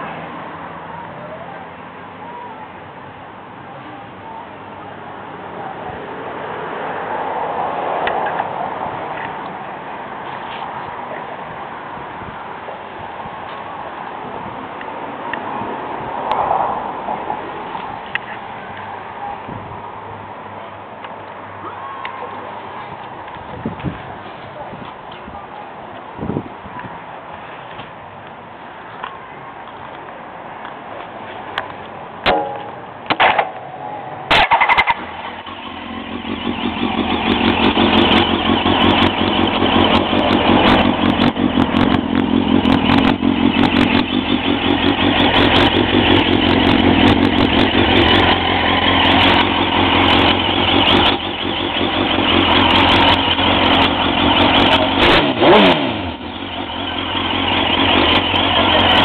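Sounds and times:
engine revving: 0:34.3 - 0:59.0
motorcycle engine idling: 0:34.3 - 0:59.0.

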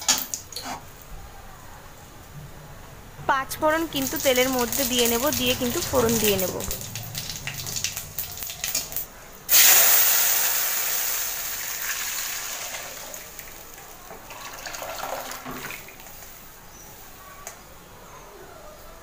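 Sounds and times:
loud sizzle: 0:03.5 - 0:17.4
spices crackling in oil: 0:03.7 - 0:16.5.

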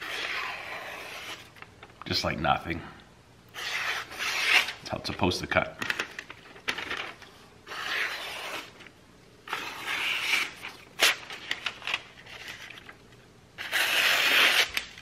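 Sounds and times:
knife swishing through paper: 0:07.7 - 0:08.7, 0:09.5 - 0:10.7.

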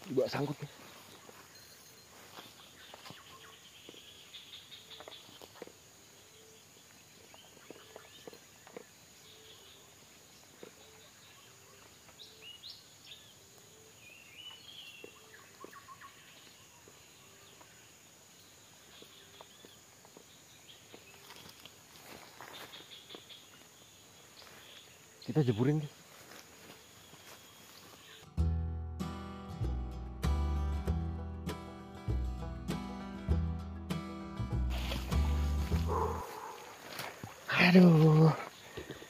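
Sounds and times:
bird chirps: 0:00.2 - 0:21.6.

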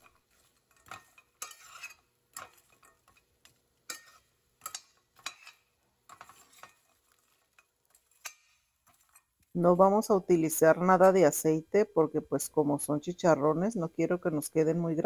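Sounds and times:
metal spoon scraping pan: 0:00.0 - 0:09.5.

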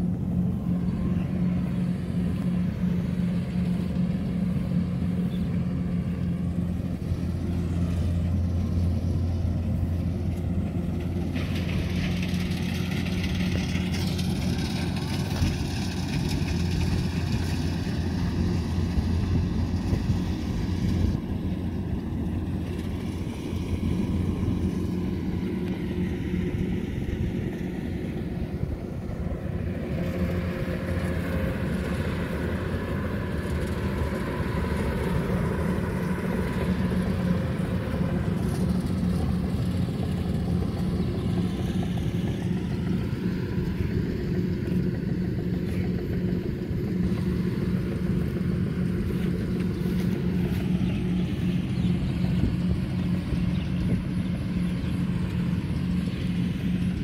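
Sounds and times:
combine harvester engine droning: 0:00.0 - 0:57.0.

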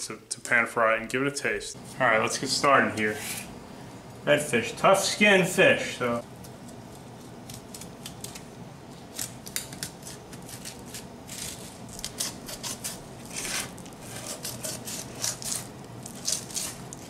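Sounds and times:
knife rasping through fish skin: 0:09.2 - 0:17.0.

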